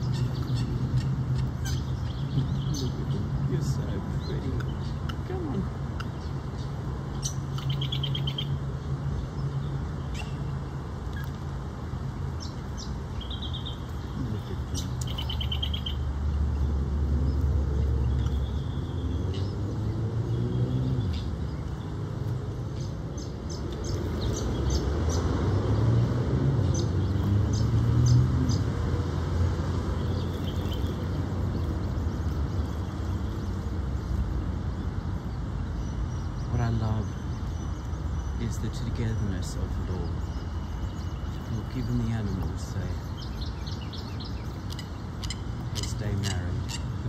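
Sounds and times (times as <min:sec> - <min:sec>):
distant freeway traffic rumble: 0:00.0 - 0:47.0
bird chirps: 0:05.9 - 0:08.6, 0:12.4 - 0:16.7, 0:17.3 - 0:19.7, 0:35.2 - 0:47.0.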